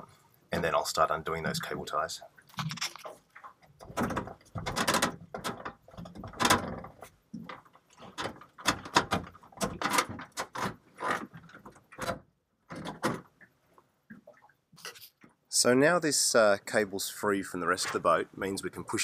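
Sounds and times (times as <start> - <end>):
steering helm clicking and rattling: 3.7 - 13.4.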